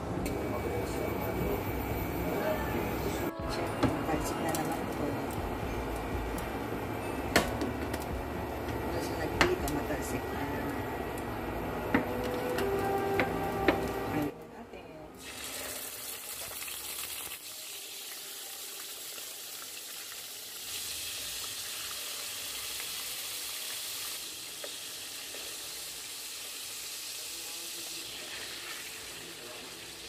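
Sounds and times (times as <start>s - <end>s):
chicken sizzling in hot oil: 15.2s - 30.0s.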